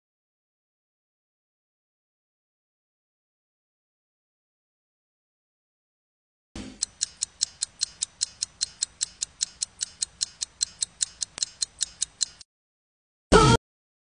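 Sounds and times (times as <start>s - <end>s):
steady clock-like ticking: 6.6s - 12.5s.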